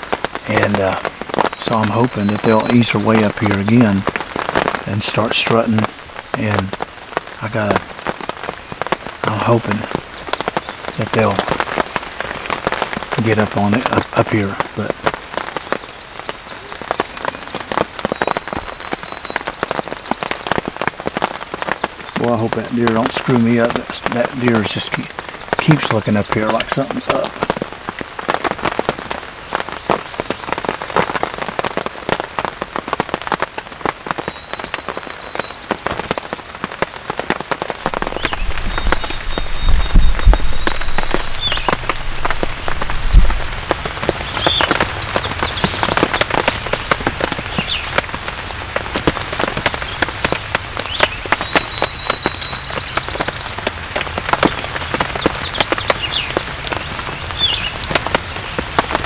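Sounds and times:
steady rain pattering: 0.0 - 59.0
songbird trills and chirps: 13.3 - 27.4, 34.2 - 43.3, 44.2 - 48.1, 49.6 - 53.8, 54.5 - 58.6.

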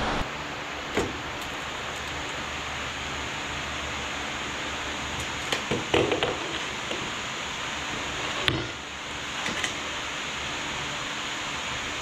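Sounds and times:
electric fans running: 0.0 - 12.0.

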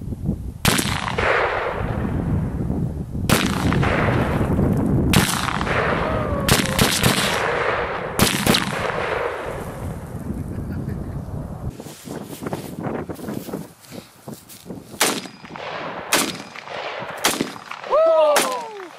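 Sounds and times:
rifle shots: 0.6 - 2.0, 3.3 - 9.8, 15.0 - 18.9
rolling echo of gunshots: 0.6 - 2.2, 3.3 - 9.9, 15.0 - 18.7.

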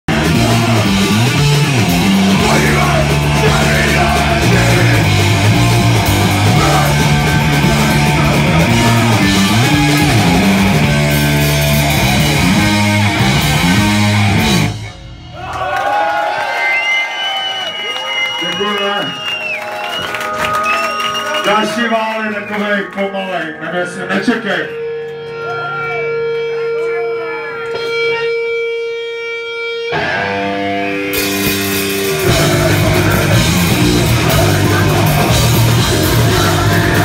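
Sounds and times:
punk rock band playing live: 0.0 - 15.4, 24.8 - 37.0
shouted vocals: 0.1 - 10.9.

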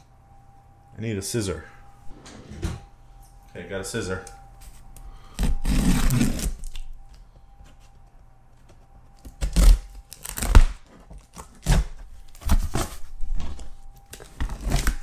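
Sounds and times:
cardboard tearing and scraping: 5.3 - 6.8, 9.2 - 15.0
scissors slitting packing tape: 5.4 - 6.9, 9.2 - 13.0, 14.1 - 15.0.

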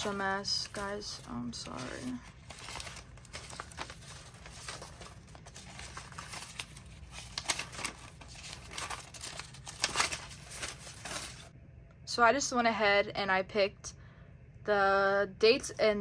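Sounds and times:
paper crinkling and rustling: 0.0 - 11.5.

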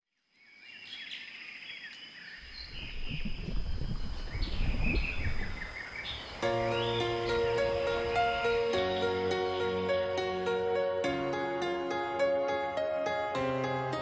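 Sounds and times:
birds chirping: 0.4 - 10.8
high insect-like tone: 2.0 - 9.8
sustained music notes: 6.4 - 14.0.

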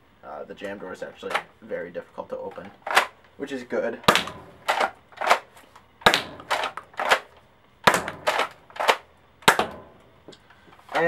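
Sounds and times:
toy blaster plastic clacks: 6.1 - 7.3.

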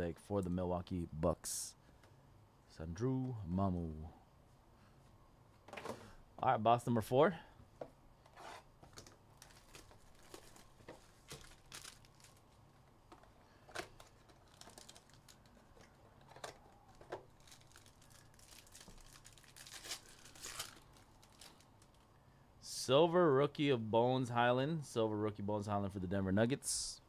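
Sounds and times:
plastic wrap crinkling and tearing: 8.9 - 12.6, 13.8 - 22.0.

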